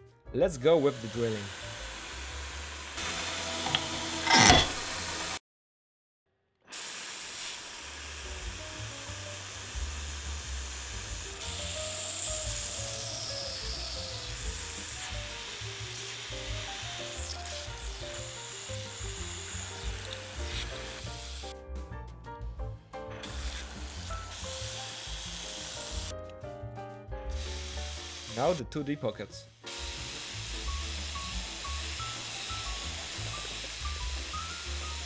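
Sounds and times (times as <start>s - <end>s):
milling machine drilling hiss: 0.7s - 5.4s, 6.7s - 21.5s, 23.2s - 26.2s, 27.3s - 28.7s, 29.4s - 35.0s
background music with bass line: 19.5s - 25.3s.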